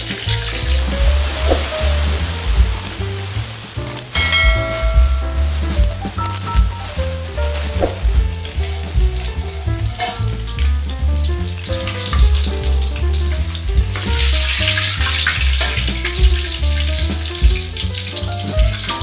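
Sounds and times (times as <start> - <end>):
background music with heavy bass: 0.0 - 19.0
hot oil sizzling in a wok: 0.0 - 19.0.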